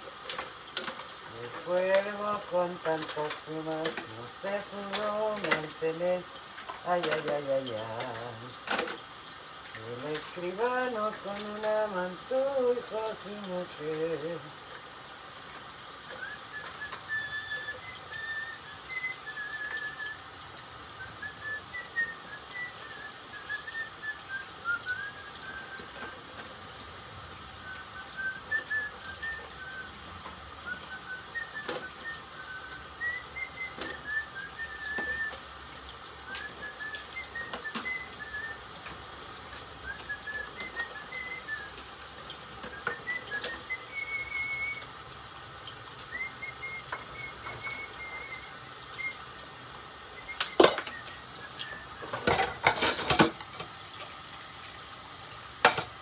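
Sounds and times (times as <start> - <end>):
person whistling a tune: 16.0 - 26.3, 27.6 - 35.6, 36.2 - 38.8, 39.7 - 42.0, 42.6 - 45.0, 46.0 - 53.2
dishes clinking: 50.3 - 51.2, 52.0 - 53.7, 55.6 - 56.0.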